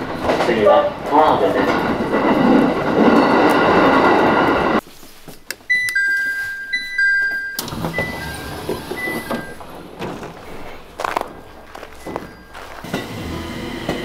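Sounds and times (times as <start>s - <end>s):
train door opening: 0.0s - 4.8s, 5.7s - 14.0s
train carriage rumble: 0.0s - 14.0s
electronic two-note door chime: 5.7s - 9.6s
station noise: 5.7s - 14.0s.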